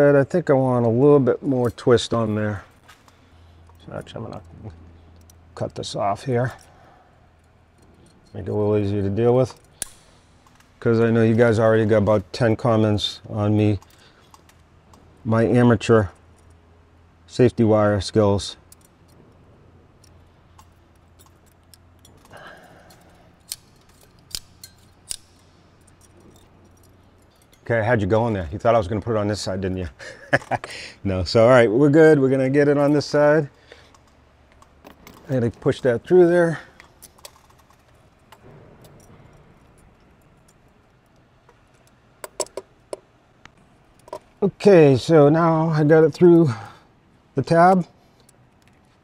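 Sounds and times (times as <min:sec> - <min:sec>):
faint steady low hum: 0:00.0 - 0:49.0
sharp metallic clicks: 0:20.0 - 0:27.7.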